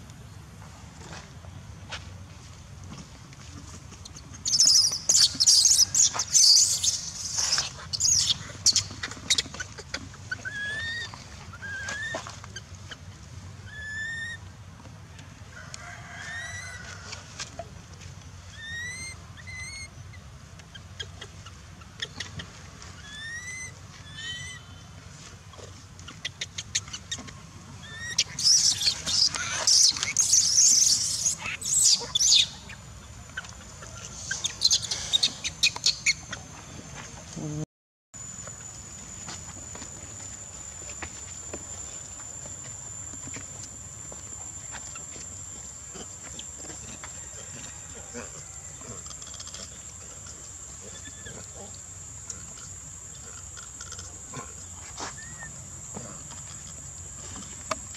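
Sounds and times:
bird rising chirp: 4.4 - 9.6, 27.8 - 36.5
baby monkey screaming: 4.4 - 12.4, 13.6 - 14.4, 18.5 - 19.9, 23.0 - 24.7, 27.8 - 32.8, 34.2 - 36.2.

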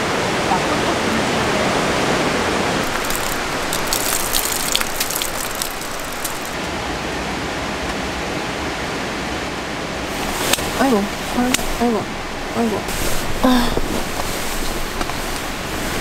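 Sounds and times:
rain: 0.0 - 16.0
rushing creek: 0.0 - 16.0
large raindrops ticking on a tarp: 2.8 - 6.7, 12.9 - 16.0.

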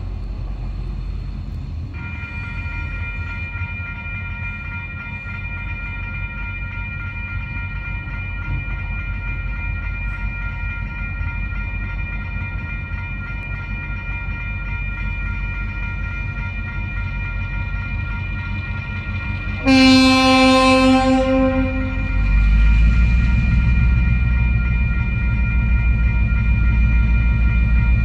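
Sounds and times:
diesel locomotive rumble: 0.0 - 3.4, 9.3 - 28.0.

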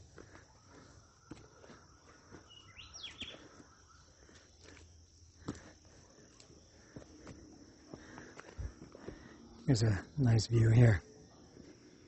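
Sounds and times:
faint footsteps walking: 0.0 - 9.4
rising bird chirp: 0.6 - 4.3.

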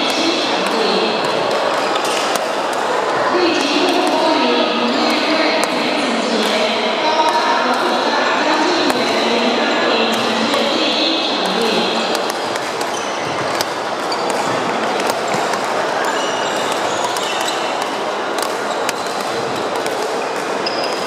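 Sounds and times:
rackets striking shuttlecocks: 0.0 - 6.6, 7.2 - 9.4, 10.0 - 10.8, 11.4 - 21.0
sports hall noise: 0.0 - 21.0
sneaker squeaks on wooden floor: 11.8 - 18.0, 18.6 - 19.2, 20.6 - 21.0.

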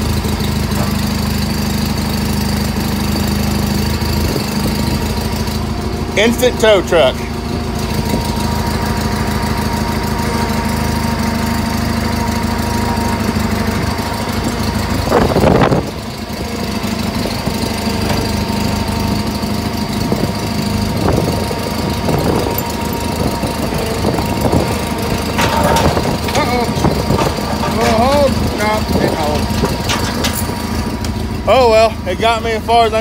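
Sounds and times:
lawn tractor engine running: 0.0 - 33.0.

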